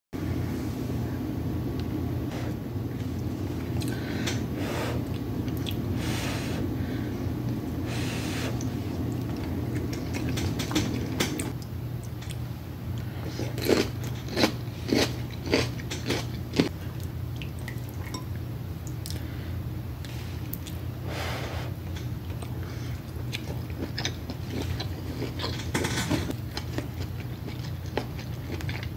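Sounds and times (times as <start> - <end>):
steady low hum: 0.2 - 28.9
person chewing: 8.6 - 18.2, 21.8 - 28.9.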